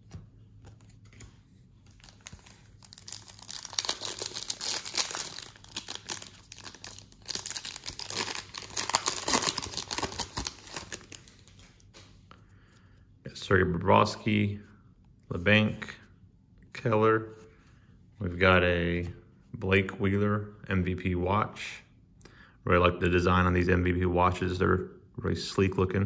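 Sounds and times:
foil wrapper tearing and crinkling: 0:02.0 - 0:11.5.

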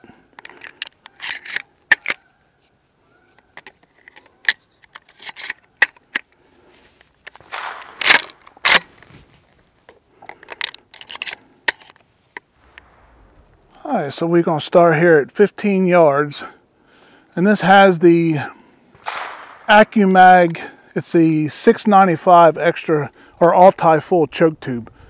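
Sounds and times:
shotgun shells clicking in: 0:00.3 - 0:02.2, 0:03.6 - 0:06.4, 0:07.2 - 0:08.8, 0:09.9 - 0:12.8
shotgun pump action clacks: 0:07.3 - 0:08.9, 0:19.0 - 0:19.7.

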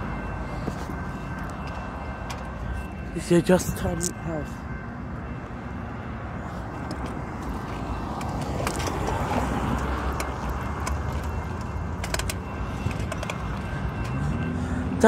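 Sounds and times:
cars driving past: 0:06.6 - 0:15.0.

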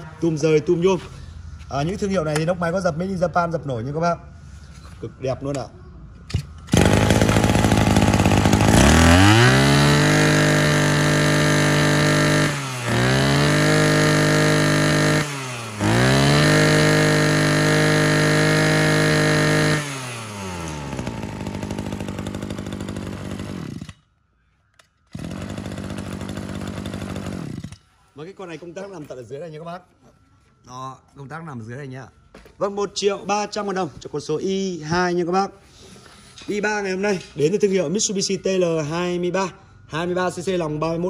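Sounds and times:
brush cutter engine revving: 0:06.7 - 0:24.0, 0:25.1 - 0:27.8.

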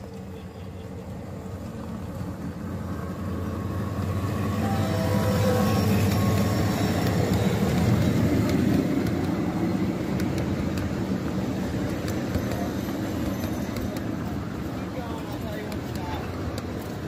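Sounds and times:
wheels rolling on rails: 0:00.0 - 0:17.0
model locomotive motor hum: 0:00.9 - 0:17.0
wheel clicks on track: 0:05.6 - 0:14.4.

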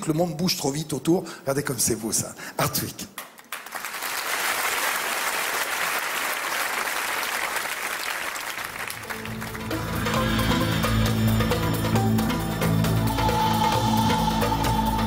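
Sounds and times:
audience applauding: 0:03.2 - 0:10.2
music: 0:08.9 - 0:15.0.

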